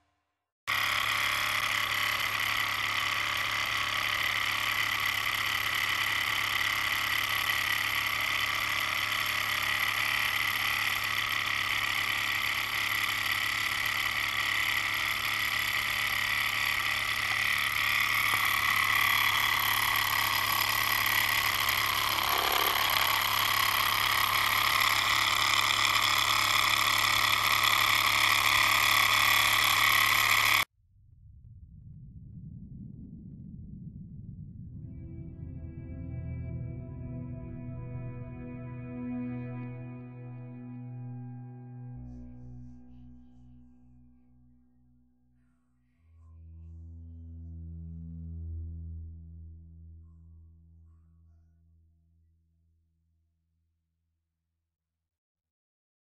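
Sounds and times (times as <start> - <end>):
stirling engine mechanical whir: 0.7 - 30.7.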